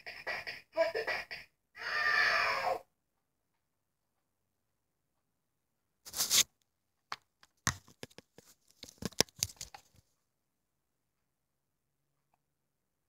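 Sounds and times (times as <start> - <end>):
brief scraping rush: 6.1 - 6.5.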